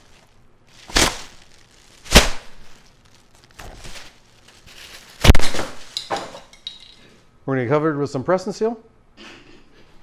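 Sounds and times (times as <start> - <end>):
plastic wrap crinkling: 0.0 - 6.8.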